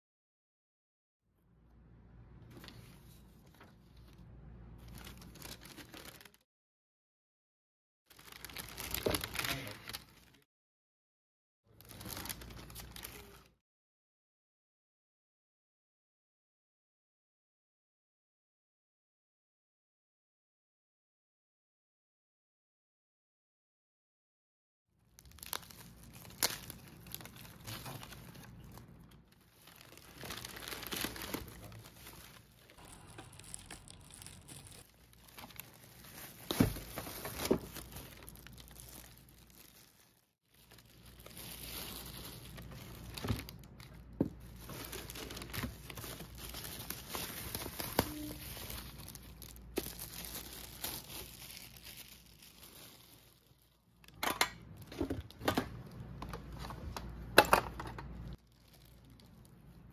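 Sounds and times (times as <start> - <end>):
bubble wrap and paper crinkling: 2.4 - 6.4, 8.1 - 10.4, 11.7 - 13.6, 25.0 - 54.1, 58.1 - 59.9.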